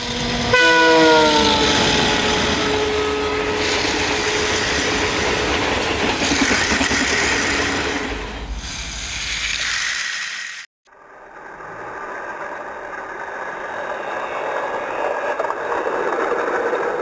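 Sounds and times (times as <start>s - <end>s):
toy train motor whirring rattle: 8.7s - 14.8s.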